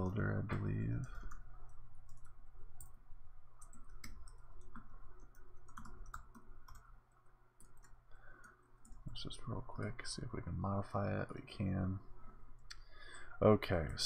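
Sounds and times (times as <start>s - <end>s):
computer keyboard keys clicking: 2.1s - 3.0s, 3.6s - 9.2s.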